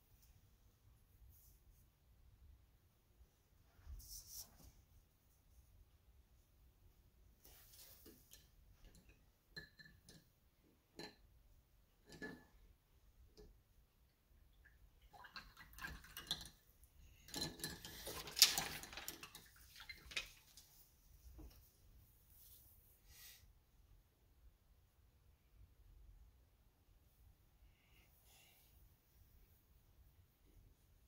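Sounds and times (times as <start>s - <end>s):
painting supplies clicking and clinking: 8.0s - 11.3s, 15.9s - 20.7s.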